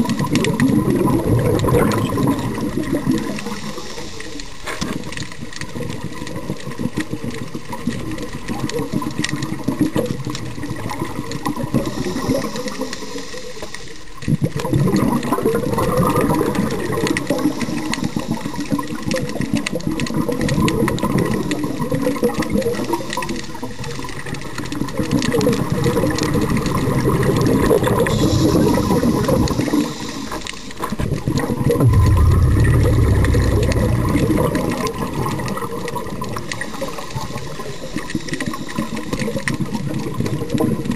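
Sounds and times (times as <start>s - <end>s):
lobsters clicking underwater: 0.0s - 31.4s, 35.7s - 40.9s
diver's exhaled bubbles rushing: 31.7s - 35.6s.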